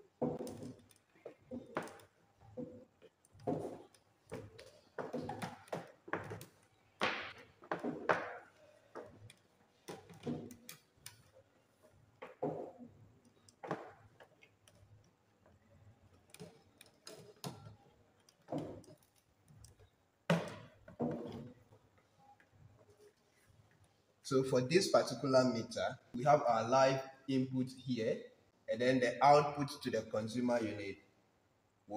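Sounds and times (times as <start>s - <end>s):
cables clicking and tapping: 0.0s - 24.0s.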